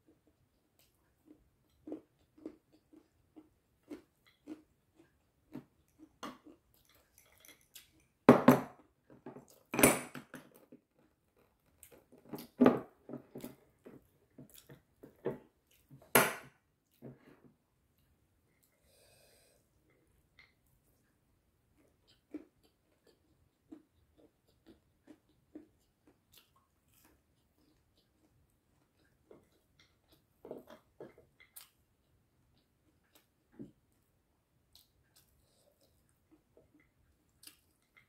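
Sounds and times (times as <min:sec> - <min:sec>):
chewing and mouth clicks: 0:00.1 - 0:08.2, 0:13.3 - 0:16.0, 0:19.9 - 0:38.0.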